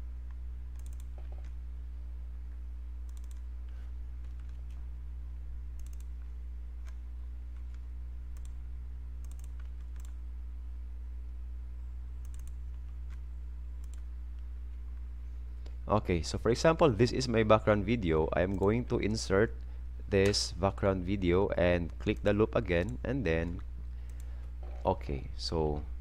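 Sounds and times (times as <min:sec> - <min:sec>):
steady low hum: 0:00.0 - 0:26.0
computer mouse double clicks: 0:00.8 - 0:01.5, 0:05.8 - 0:06.1.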